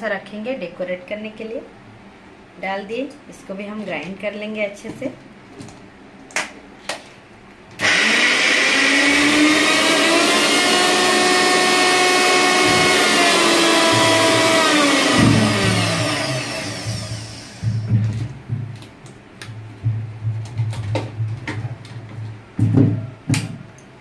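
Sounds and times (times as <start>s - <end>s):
mixer grinder grinding ice: 7.8s - 17.9s.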